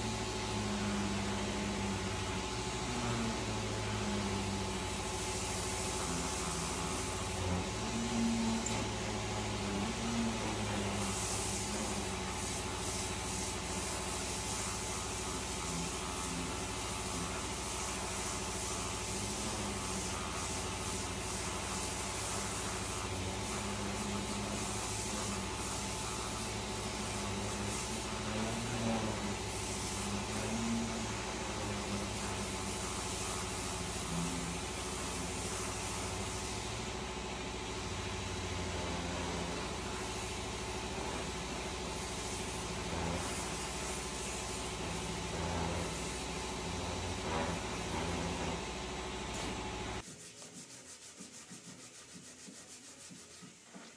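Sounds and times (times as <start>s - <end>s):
low machine hum: 0.0s - 50.0s
orbital sander on wood: 0.0s - 53.8s
power sander sanding wood: 38.3s - 53.9s.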